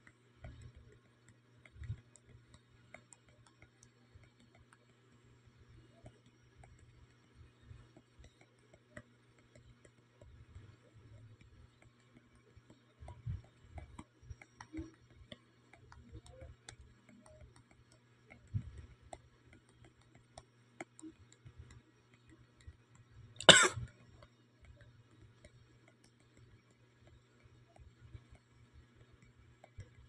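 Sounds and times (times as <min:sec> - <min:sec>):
faint ticks and taps: 0:00.0 - 0:30.0
person coughing: 0:23.4 - 0:23.8.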